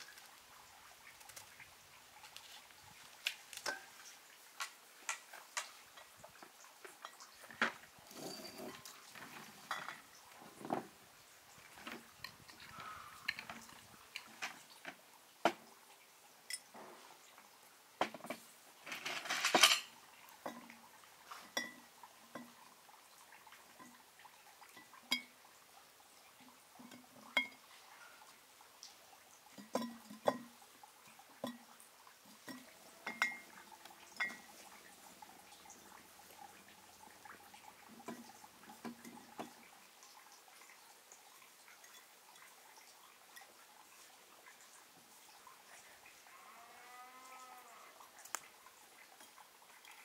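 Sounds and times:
glass rattle: 8.0 - 8.9, 18.9 - 19.9, 32.5 - 33.5, 34.2 - 34.6
glass bottles clinking: 8.1 - 9.0, 9.7 - 10.1, 18.9 - 19.9, 21.5 - 21.8, 29.6 - 30.5, 32.5 - 33.5, 34.2 - 34.6.

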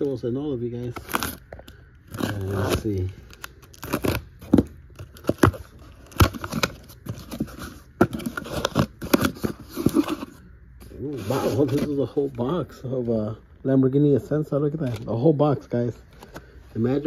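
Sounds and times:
cardboard box being opened: 2.1 - 10.4.

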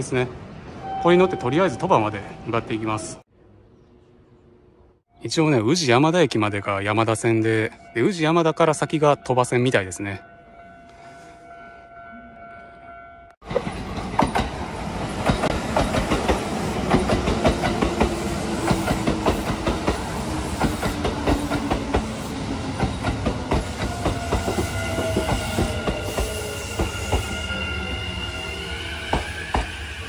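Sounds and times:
train running rumble: 13.4 - 28.0
high squealing tones: 23.9 - 30.0.

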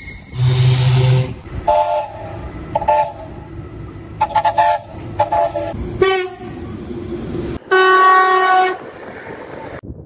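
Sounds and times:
train rumble: 0.0 - 10.0
locomotive horn toots: 0.2 - 3.4, 4.2 - 6.6, 7.6 - 8.8
loud horn blast: 0.3 - 3.4, 4.2 - 6.6, 7.6 - 8.8.

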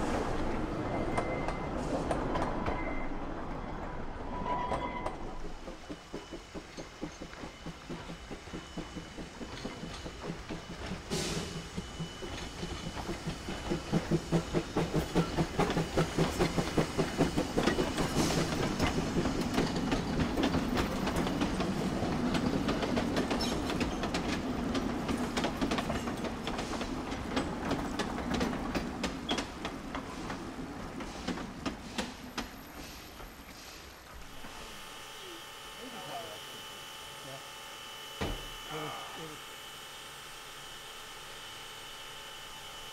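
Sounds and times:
train rumbling across trestle: 0.0 - 36.4
train wheels clicking over rail joints: 5.0 - 34.6
steam locomotive exhaust chuffs: 5.4 - 42.9.

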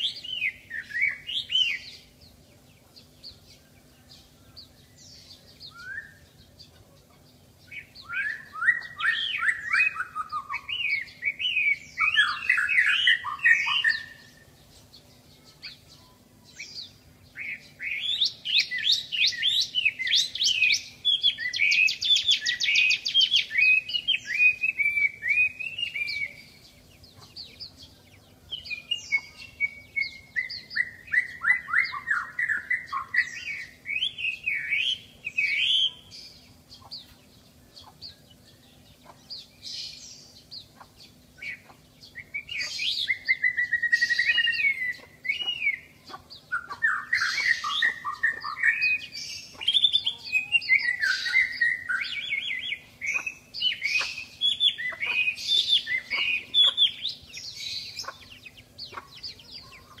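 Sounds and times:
bird singing whistled phrases: 0.0 - 2.1, 4.9 - 6.4, 7.7 - 14.4, 15.6 - 26.6, 28.6 - 36.1, 41.4 - 45.9, 46.5 - 58.0.

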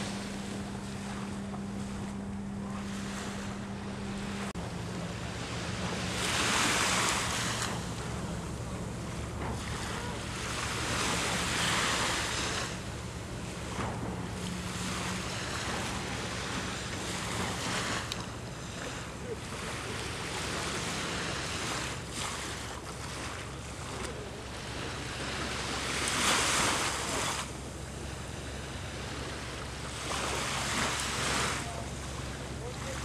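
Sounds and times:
wind buffeting microphone: 0.0 - 23.7
waves washing onto beach: 0.0 - 33.0.

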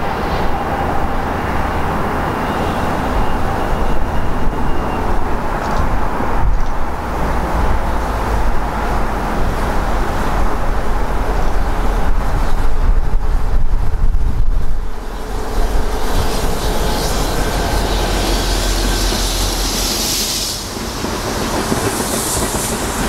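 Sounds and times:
diesel locomotive engines rumbling: 0.0 - 23.0
wind buffeting microphone: 3.0 - 19.8.

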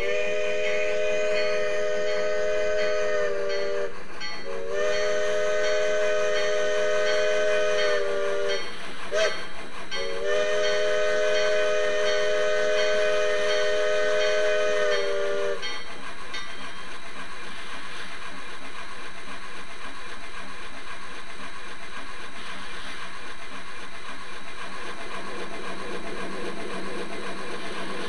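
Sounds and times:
steam locomotive chime whistle: 0.0 - 17.0
steam locomotive exhaust and hiss: 0.0 - 28.0.

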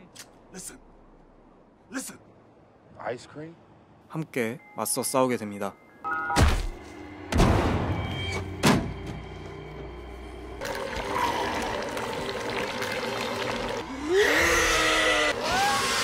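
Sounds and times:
sharp hit: 6.4 - 9.3
low sustained score tones: 6.8 - 11.3.

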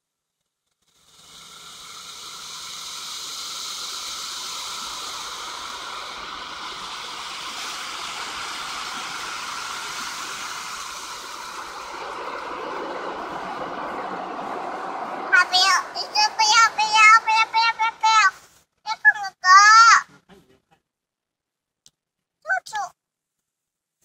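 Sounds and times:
water spray hitting car: 0.8 - 18.4.

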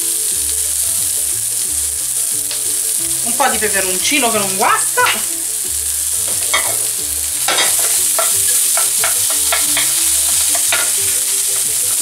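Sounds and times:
vegetables sizzling in a frying pan: 0.0 - 12.0
wooden spoon scraping and knocking pan: 6.2 - 11.2.

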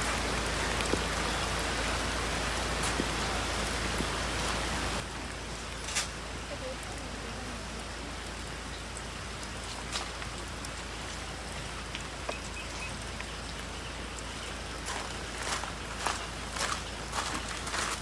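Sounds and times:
steady rain falling: 0.0 - 18.0
footsteps on gravel: 14.8 - 18.0.

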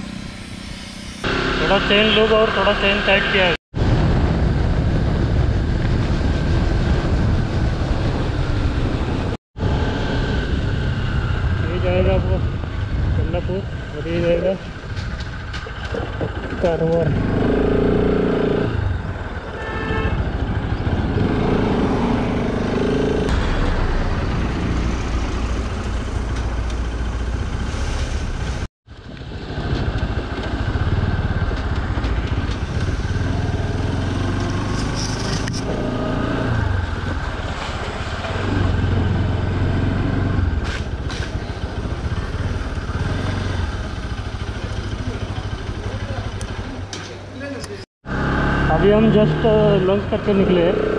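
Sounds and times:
road and wind noise: 0.0 - 50.9
motorcycle engine running: 28.9 - 46.9.

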